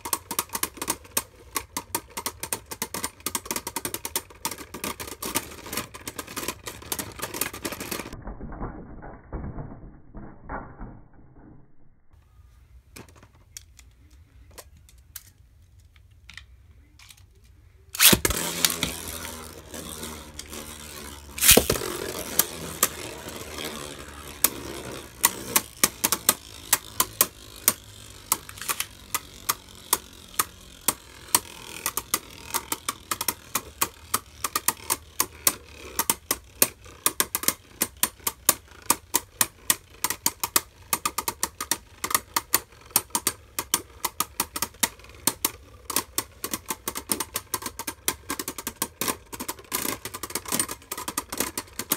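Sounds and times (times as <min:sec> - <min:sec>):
spinning tops clacking together: 0:18.0 - 0:51.9
spinning tops whirring: 0:18.0 - 0:51.9
loud plastic clash: 0:21.4 - 0:23.0.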